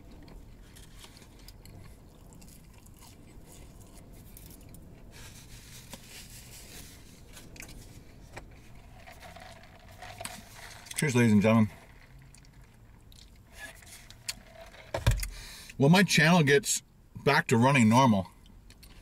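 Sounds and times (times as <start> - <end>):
person chewing fries: 0.0 - 11.0.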